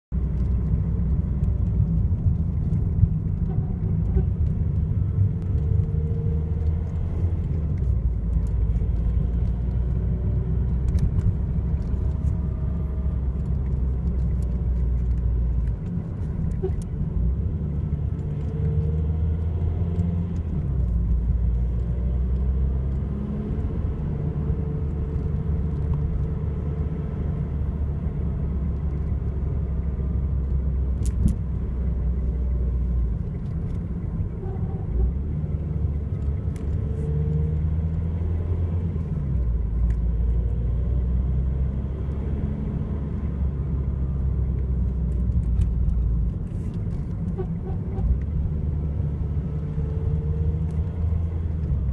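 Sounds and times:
diesel engine rumble in cabin: 0.1 - 51.9.

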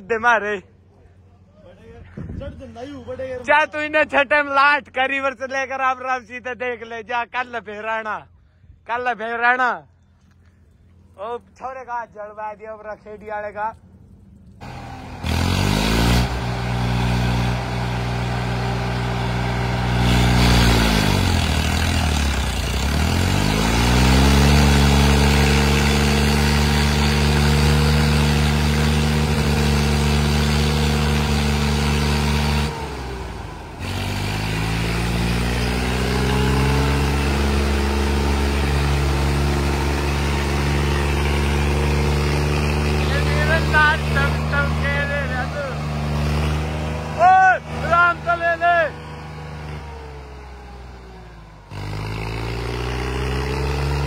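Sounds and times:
tractor diesel engine straining: 14.1 - 54.0.

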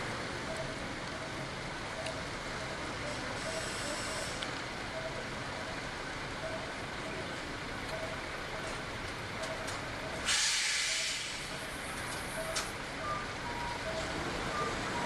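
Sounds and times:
street traffic: 0.0 - 15.0
bus air brake hiss: 3.4 - 4.4, 10.2 - 11.6
faint short beeps: 3.4 - 5.2.

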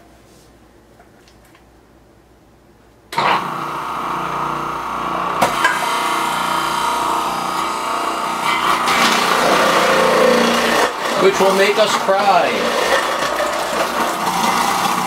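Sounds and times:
food processor motor running: 3.2 - 15.0.

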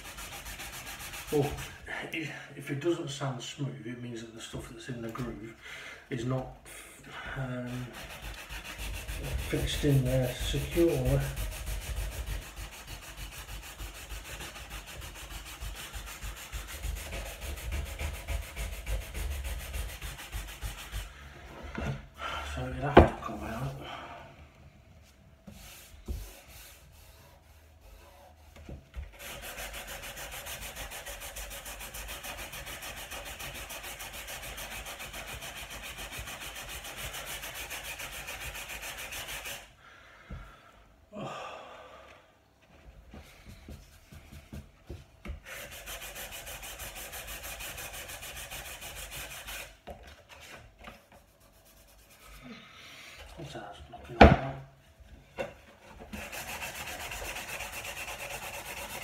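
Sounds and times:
sandpaper rubbing on wood: 0.0 - 1.8, 7.6 - 21.2, 25.5 - 39.7, 45.4 - 49.8, 51.0 - 52.4, 56.1 - 59.0.

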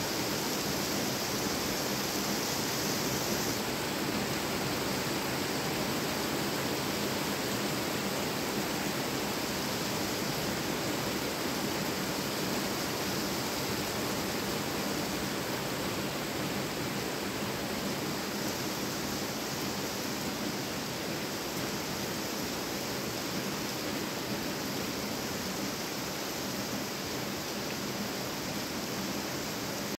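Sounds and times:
heavy rain on pavement and cars: 0.0 - 30.0.

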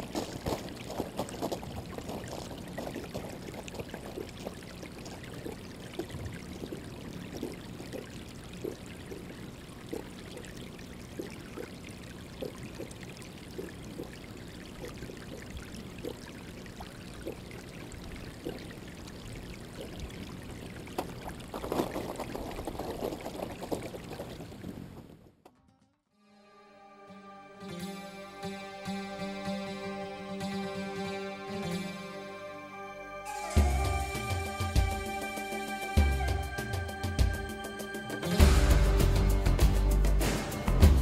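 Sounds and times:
small water splashes: 0.0 - 25.1
water lapping in a trough: 0.0 - 25.1.

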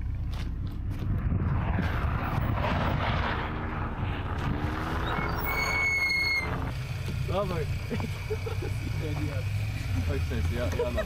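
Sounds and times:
car engine revving: 0.6 - 11.0
rushing noise: 1.1 - 6.9
short high whistle: 5.1 - 6.5.

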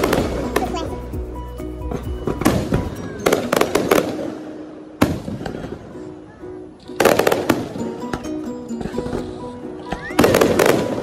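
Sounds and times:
fireworks bangs: 0.0 - 0.9, 1.9 - 6.1, 9.9 - 11.0
music: 0.0 - 11.0.

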